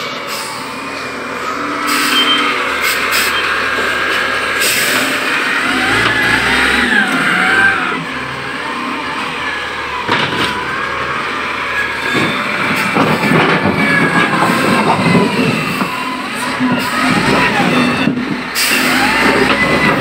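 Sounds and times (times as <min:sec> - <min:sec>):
loader diesel engine revving: 0:00.2 - 0:20.0
wavering squeal: 0:05.4 - 0:09.2.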